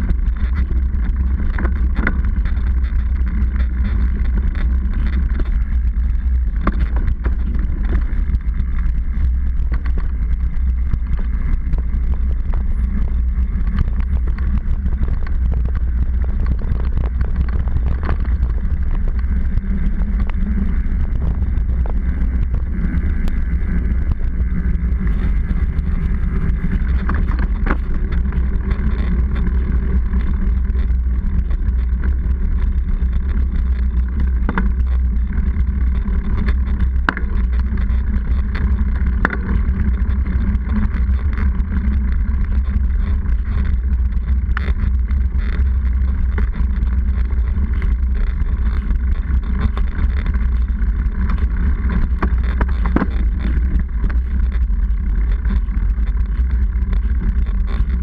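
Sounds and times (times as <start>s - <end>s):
bike tyres rolling on concrete: 0.0s - 58.0s
wind buffeting: 9.1s - 30.9s.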